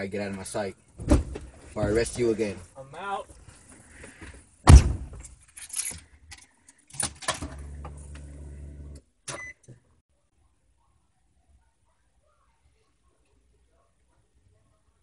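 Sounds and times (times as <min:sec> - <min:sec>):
heavy thump: 0:04.7 - 0:05.2.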